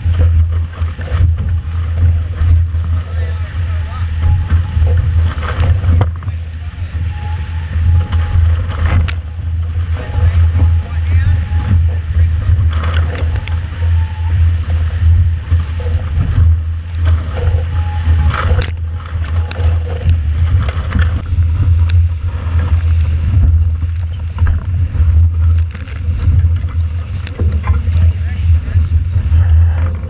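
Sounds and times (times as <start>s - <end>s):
water rushing past hulls: 0.0s - 30.0s
wind buffeting microphone: 0.0s - 30.0s.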